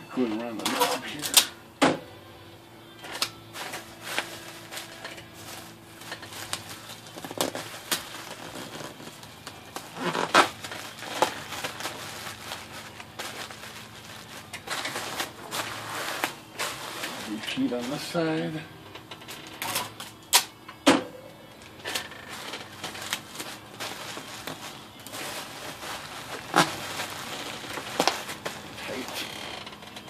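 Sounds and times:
bubble wrap crinkling: 3.2s - 18.3s, 21.7s - 30.0s.

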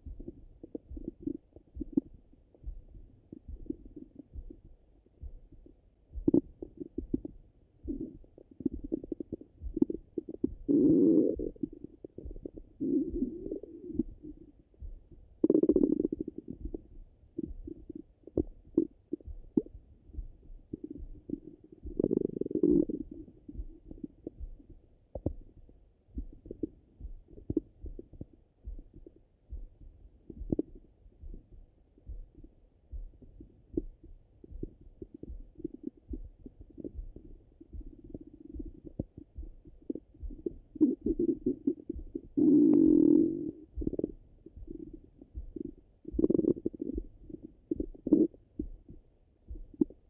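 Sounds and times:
faint pops and clicks: 0.0s - 50.0s
stomach gurgles: 6.2s - 14.7s, 15.4s - 19.8s, 20.6s - 25.5s, 30.3s - 30.8s, 34.6s - 50.0s.

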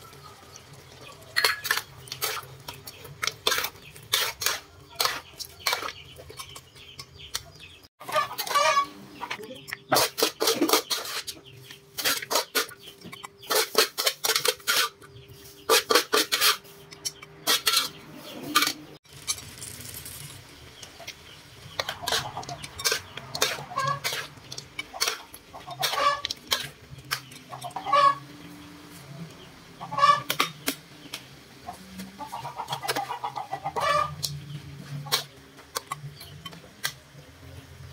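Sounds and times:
chickens clucking: 0.0s - 19.0s, 20.6s - 37.7s
metal spatula scraping wok: 1.4s - 6.7s, 9.8s - 20.4s, 21.5s - 29.2s, 31.7s - 37.0s.

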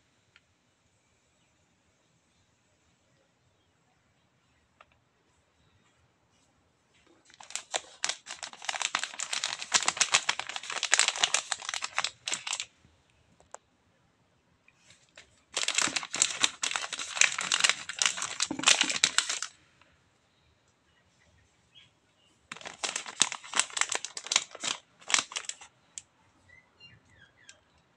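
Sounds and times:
plastic wrapper crinkling: 7.2s - 12.7s, 15.0s - 19.6s, 22.5s - 26.0s.

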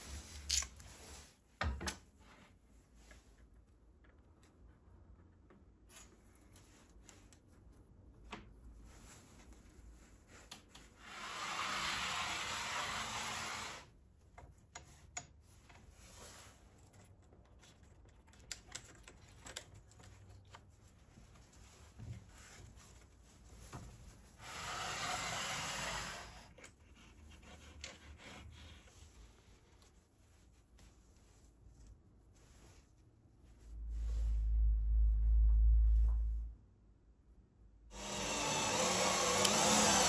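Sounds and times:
clicks and knocks of handling: 16.9s - 20.9s.

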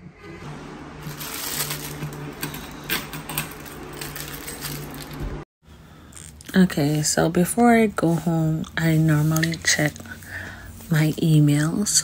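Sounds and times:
plastic wrapping crinkling: 1.0s - 5.4s.

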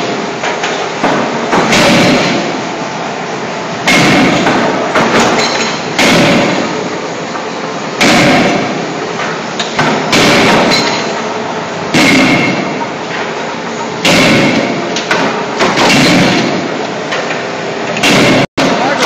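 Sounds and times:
steady industrial din: 0.0s - 19.0s
forging hammer heavy blows: 1.0s - 2.5s, 3.8s - 6.8s, 8.0s - 8.8s, 9.8s - 11.1s, 11.9s - 12.8s, 14.0s - 16.7s, 18.0s - 19.0s.

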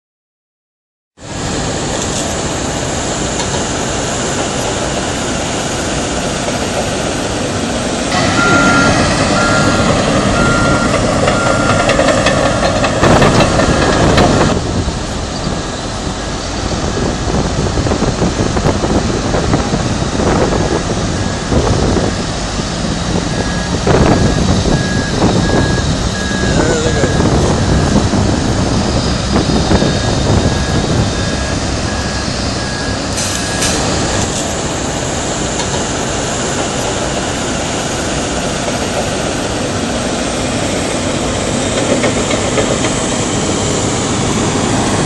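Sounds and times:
heavy machine diesel engines running: 1.2s - 45.0s
reversing alarm beeping: 8.1s - 14.6s, 20.4s - 34.3s
second reversing alarm beeping: 8.1s - 14.6s, 22.8s - 34.0s.

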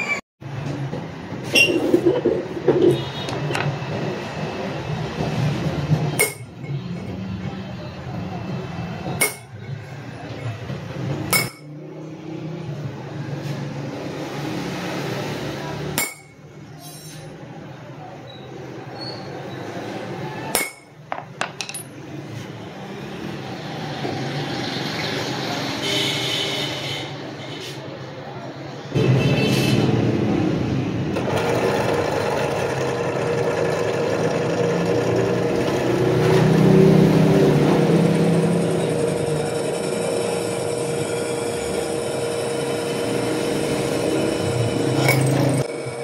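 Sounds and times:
hammer striking metal chisel: 6.2s - 6.6s, 9.2s - 9.6s, 11.3s - 11.8s, 16.0s - 16.4s, 20.5s - 22.0s.

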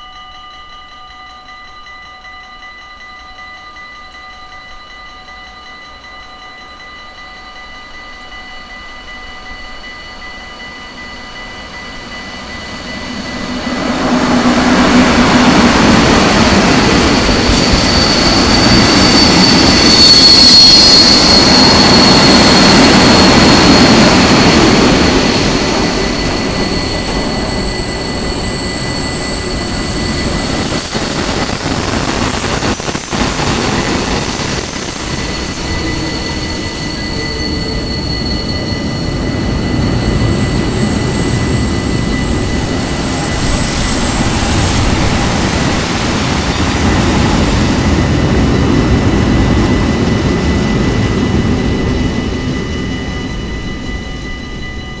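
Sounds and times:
level crossing warning bell: 0.0s - 55.0s
rolling rumble of train wagons: 0.0s - 55.0s
diesel locomotive passing: 6.0s - 55.0s
high-pitched wheel squeal: 12.0s - 55.0s.

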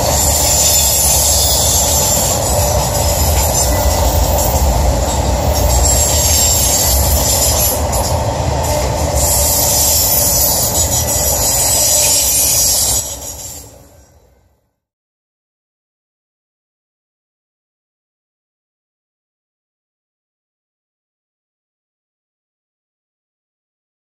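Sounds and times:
train wheels rumbling on rail: 0.0s - 14.6s.

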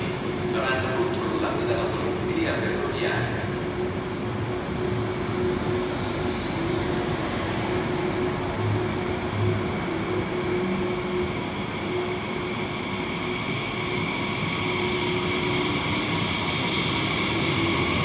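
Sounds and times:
train hum: 0.0s - 18.0s
train rumble: 0.0s - 18.0s.

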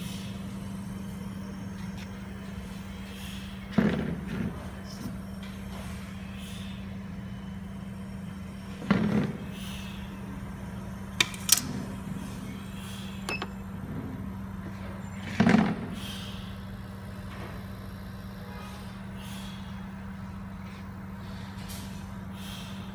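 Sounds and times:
compressor hum: 0.0s - 22.9s.

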